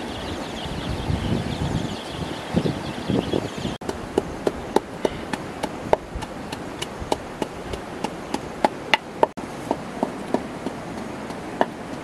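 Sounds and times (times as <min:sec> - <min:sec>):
wooden pestle pounding in mortar: 0:09.7 - 0:12.0.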